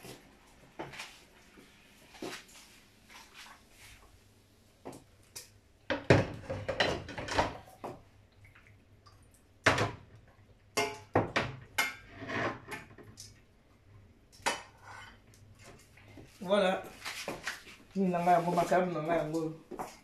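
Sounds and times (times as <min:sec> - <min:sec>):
kitchenware clattering: 0:05.9 - 0:07.8, 0:10.8 - 0:13.1.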